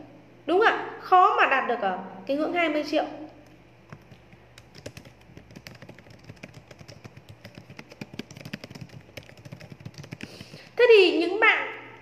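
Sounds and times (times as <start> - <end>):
low steady hum: 0.0 - 12.0
rapid irregular clicking and clattering: 3.9 - 10.8.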